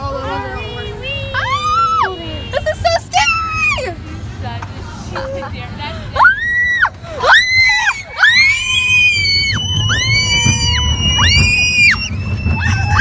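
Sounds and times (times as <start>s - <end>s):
roller coaster train rumbling: 0.0s - 13.0s
riders screaming: 6.2s - 13.0s.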